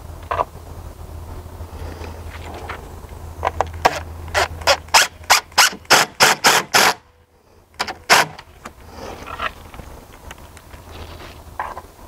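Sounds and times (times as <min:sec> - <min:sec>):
cordless driver driving screws: 0:03.8 - 0:07.0, 0:07.8 - 0:08.4.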